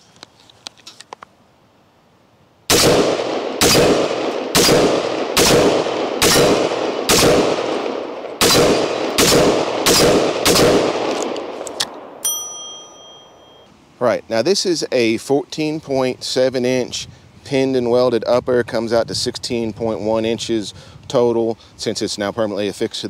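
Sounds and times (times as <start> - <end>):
rifle shots with echo: 2.7 - 12.2.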